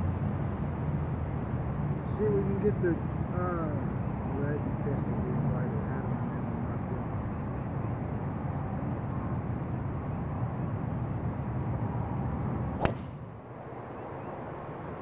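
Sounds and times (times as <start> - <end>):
golf club striking ball: 12.8 - 13.4.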